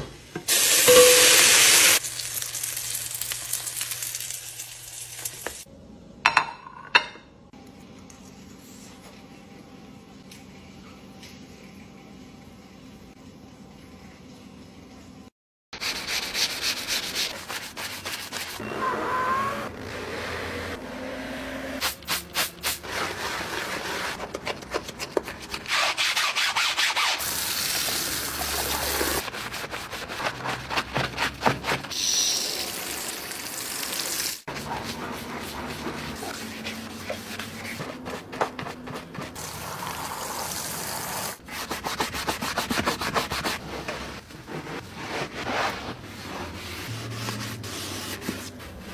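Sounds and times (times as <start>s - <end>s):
scrubbing upholstery: 34.5s - 39.6s, 41.4s - 48.9s.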